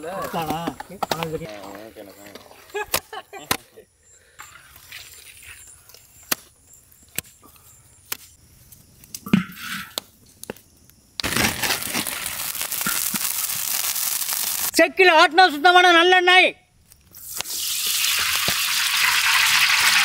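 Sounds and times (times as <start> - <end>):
wood fire crackling: 9.9 - 14.8.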